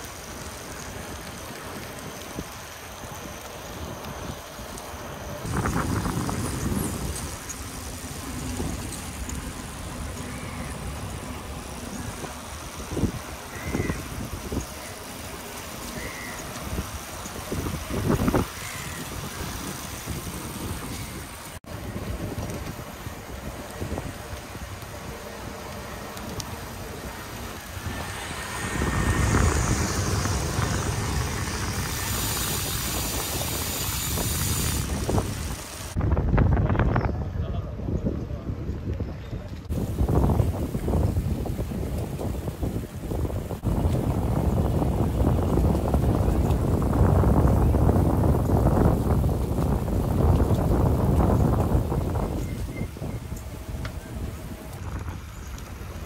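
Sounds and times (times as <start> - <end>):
tyres rumbling on asphalt: 0.0 - 36.0
wind rush: 1.1 - 56.0.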